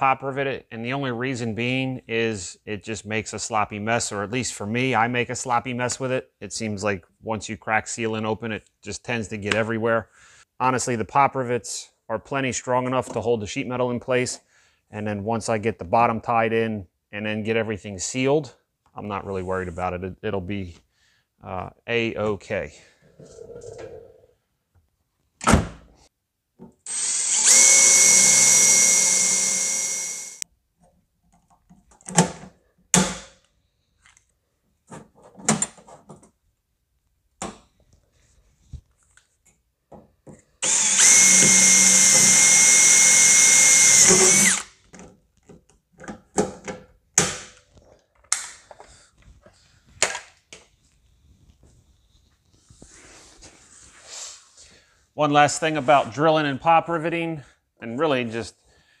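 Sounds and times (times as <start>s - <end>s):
cordless drill drilling sheet metal: 26.9s - 30.4s, 40.6s - 44.8s.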